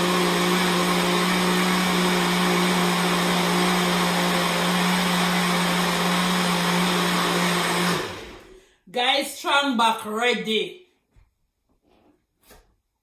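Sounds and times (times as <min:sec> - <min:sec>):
blender motor whirring: 0:00.0 - 0:08.6.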